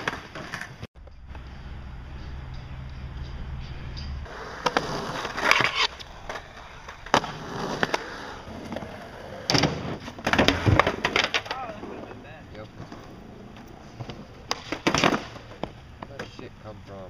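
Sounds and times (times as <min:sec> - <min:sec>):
skateboard wheels rolling on concrete: 0:00.0 - 0:17.0
steady low hum: 0:01.0 - 0:09.5
skateboard deck clacking on ground: 0:04.3 - 0:16.5.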